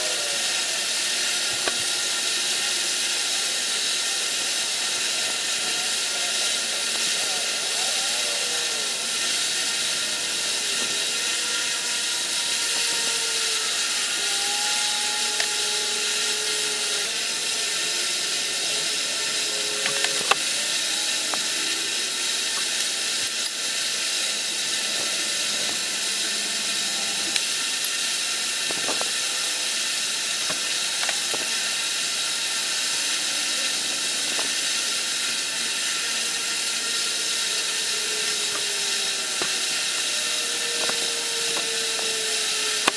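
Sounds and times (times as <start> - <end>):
sharp clicks of metal tools: 22.5 - 23.8, 42.7 - 42.9.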